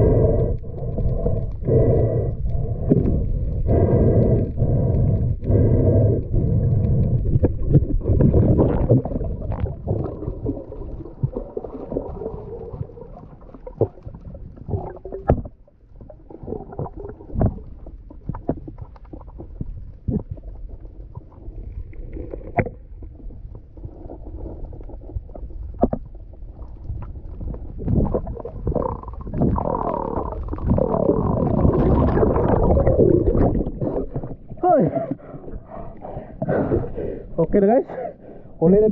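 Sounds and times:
underwater rumble of moving water: 0.0 - 38.9
underwater clicks and knocks: 6.4 - 23.7, 25.4 - 35.2.

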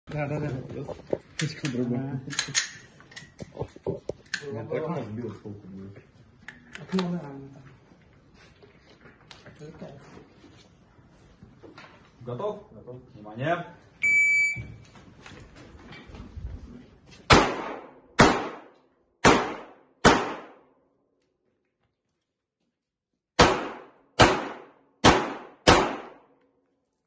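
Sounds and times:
pistol shots echoing indoors: 17.3 - 20.8, 23.4 - 26.4.

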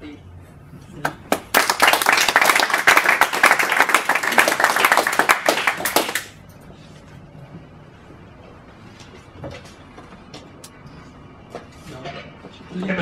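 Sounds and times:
low room noise: 0.0 - 13.0
audience applauding: 1.1 - 6.4.

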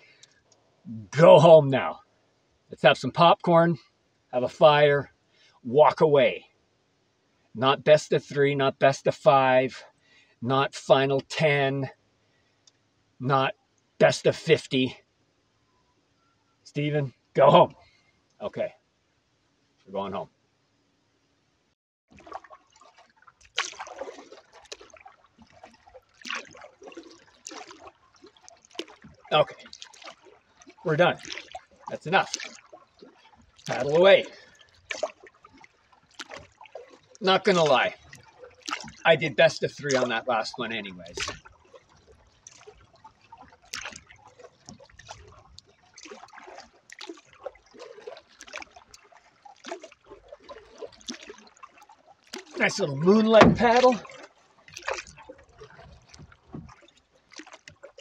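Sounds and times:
paddle water trickling and dripping: 0.0 - 58.0
paddle stroke splash: 22.1 - 58.0.

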